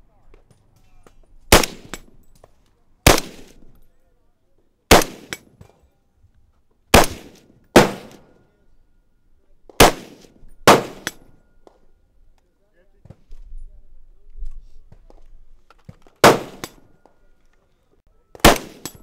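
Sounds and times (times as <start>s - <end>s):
rifle shots with echo: 1.5s - 2.1s, 3.0s - 3.7s, 4.9s - 5.5s, 6.9s - 8.4s, 9.7s - 11.4s, 16.2s - 17.0s, 18.4s - 19.0s.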